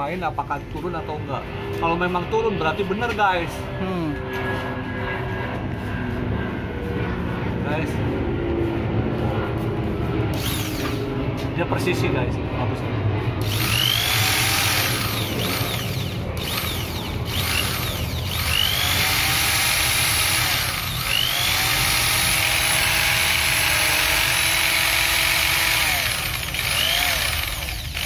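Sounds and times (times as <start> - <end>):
electric drill motor whine: 10.3 - 11.1, 13.4 - 28.0.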